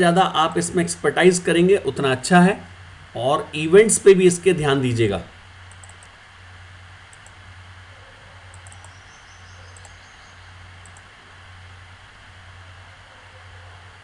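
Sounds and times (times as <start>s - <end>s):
low hum and hiss: 0.0s - 14.0s
computer mouse clicks: 5.7s - 6.2s, 7.1s - 7.4s, 8.5s - 9.0s, 9.7s - 10.0s, 10.8s - 11.1s.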